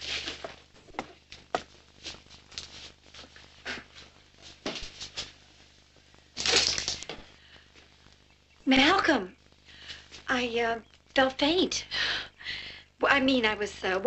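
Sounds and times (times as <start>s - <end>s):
person handling things: 0.0s - 5.6s, 6.4s - 7.9s.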